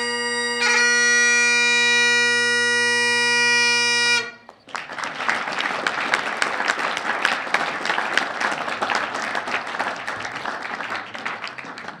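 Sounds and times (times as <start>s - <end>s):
audience applauding: 4.4s - 12.0s.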